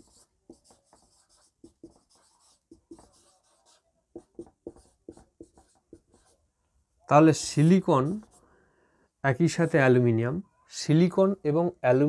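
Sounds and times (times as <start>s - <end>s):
marker pen scratching whiteboard: 0.0s - 6.4s.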